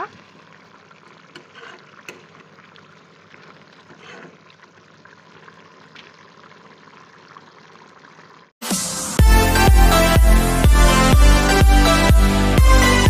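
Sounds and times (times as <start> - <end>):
gravy bubbling with small pops: 0.0 - 8.6.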